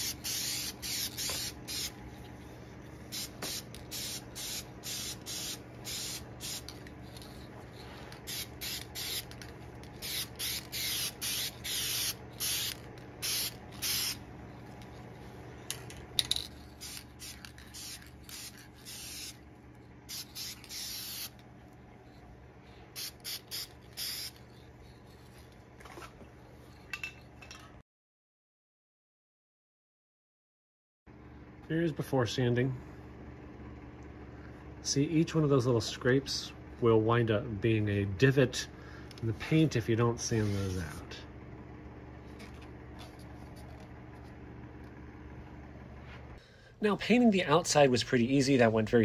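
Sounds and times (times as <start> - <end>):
spray can hissing: 0.0 - 2.0, 3.1 - 14.2, 16.6 - 19.4, 20.1 - 21.4, 23.0 - 24.4.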